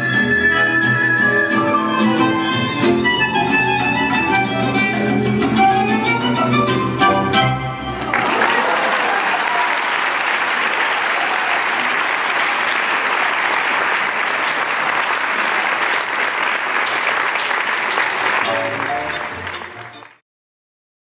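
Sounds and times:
music: 0.0s - 8.1s, 18.0s - 20.2s
audience applauding: 7.9s - 20.2s.

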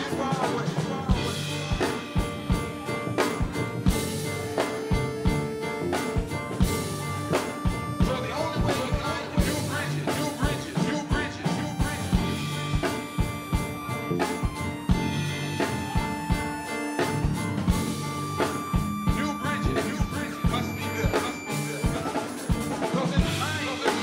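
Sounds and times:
drum beat: 0.0s - 24.0s
electric bass: 0.0s - 24.0s
keyboards: 0.0s - 24.0s.

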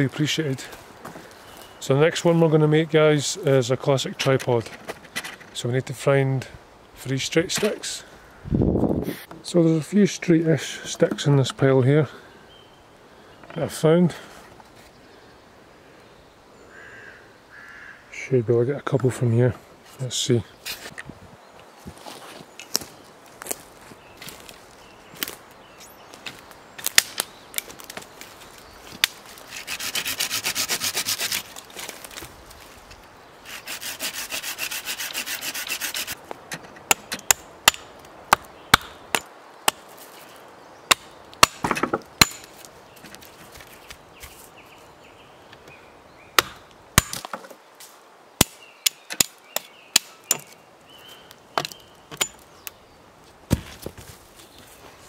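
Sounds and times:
hatchet chopping branches: 26.3s - 28.0s, 33.6s - 40.0s, 40.9s - 42.7s, 46.4s - 47.6s, 48.4s - 50.6s, 51.5s - 52.5s
small saw cutting stick: 29.5s - 31.6s, 33.4s - 36.2s
dry sticks clattering: 51.6s - 52.8s.

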